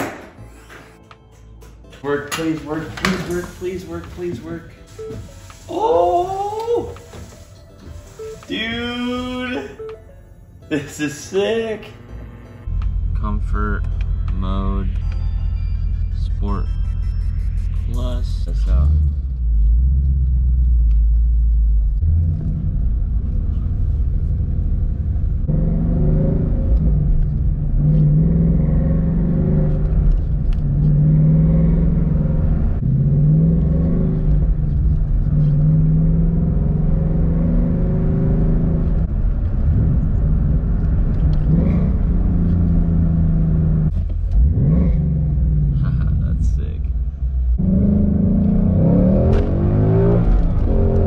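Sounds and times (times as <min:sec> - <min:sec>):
car engine accelerating: 0:10.6 - 0:51.0.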